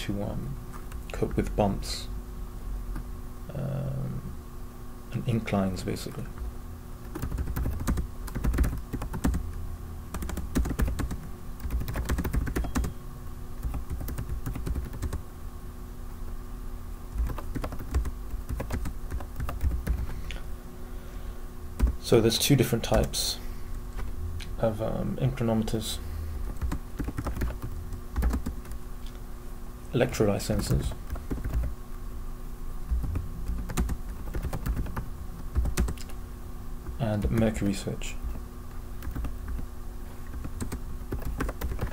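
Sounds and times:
faint steady hum: 0.0s - 41.9s
keyboard typing clicks: 7.1s - 9.5s, 10.1s - 13.0s, 17.2s - 20.1s, 26.5s - 28.8s, 32.9s - 36.2s, 39.0s - 39.6s, 40.3s - 41.9s.

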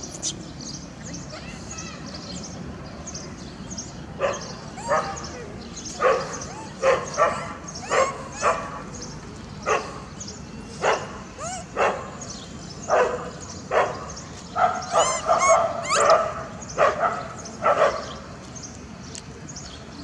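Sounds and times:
high squeaks: 15.0s - 16.1s.

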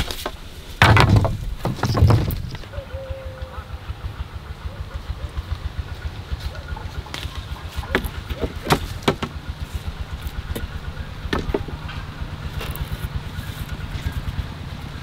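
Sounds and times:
steady low rumble: 0.6s - 15.0s
wooden sticks knocking: 0.8s - 2.7s, 7.1s - 9.4s, 11.3s - 11.8s.

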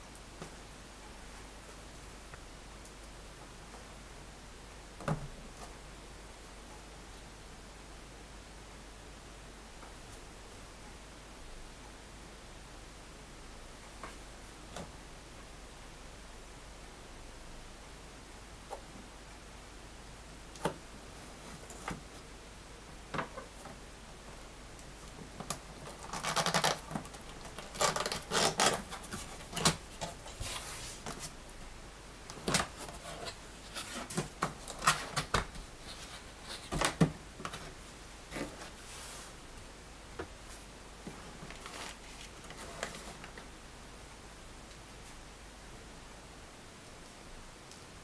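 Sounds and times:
clicks and rustles: 24.8s - 31.4s.

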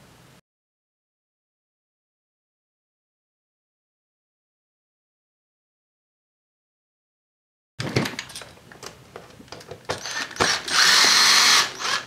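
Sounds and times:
handling clicks and knocks: 7.8s - 10.6s
cordless drill driving screw: 9.9s - 12.0s.

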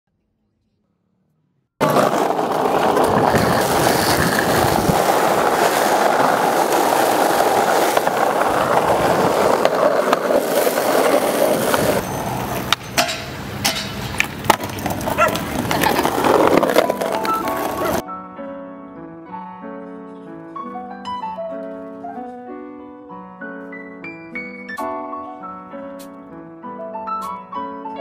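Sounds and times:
skateboard clacks and knocks: 1.8s - 18.0s
skateboard wheels rolling on asphalt: 1.8s - 18.0s.

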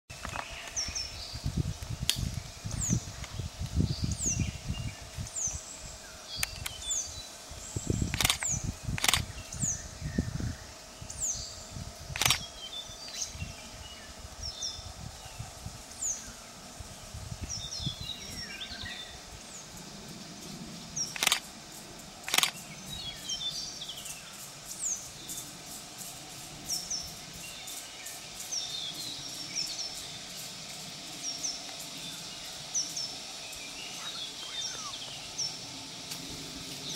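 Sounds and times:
small birds chirping: 0.1s - 36.9s
sharp clicks: 6.4s - 6.8s, 8.1s - 9.3s, 12.1s - 12.5s, 21.1s - 21.5s, 22.2s - 22.6s.

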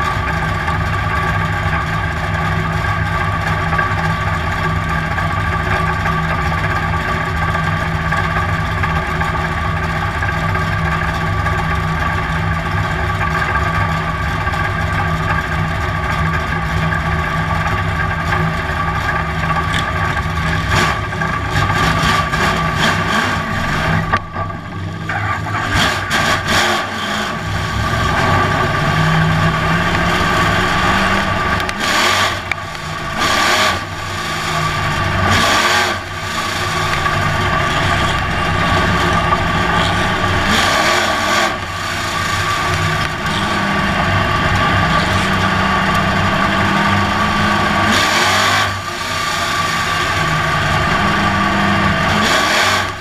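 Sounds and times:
engine throttle blips: 0.0s - 53.0s
race car engine idling: 0.0s - 53.0s.

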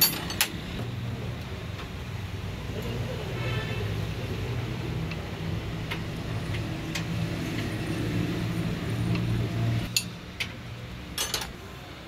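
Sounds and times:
spanner clinking on metal: 0.0s - 0.6s, 9.9s - 10.2s, 11.2s - 11.6s.

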